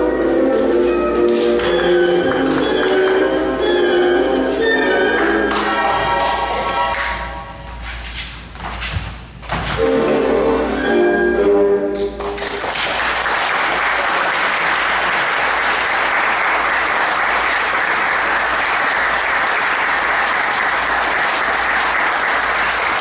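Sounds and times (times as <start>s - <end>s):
recorded music: 0.0s - 7.7s, 9.6s - 12.5s
audience applauding: 12.4s - 23.0s.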